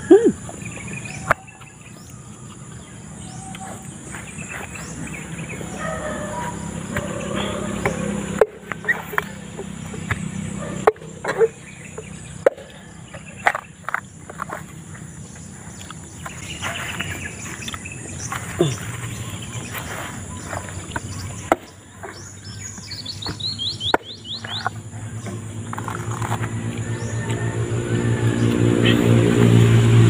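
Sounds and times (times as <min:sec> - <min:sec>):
bird chirping: 0:00.0 - 0:30.0
high insect drone: 0:00.0 - 0:30.0
machete chopping coconut: 0:06.6 - 0:11.6, 0:12.3 - 0:14.5, 0:20.5 - 0:22.3, 0:23.2 - 0:27.5.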